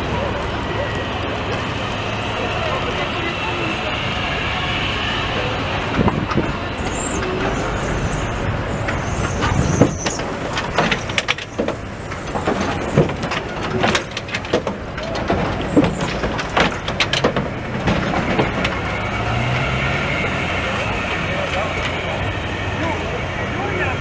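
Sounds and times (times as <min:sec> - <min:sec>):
tram running noise: 0:00.0 - 0:24.0
high squeaks: 0:03.7 - 0:22.5
tram clicks and knocks: 0:05.3 - 0:22.8.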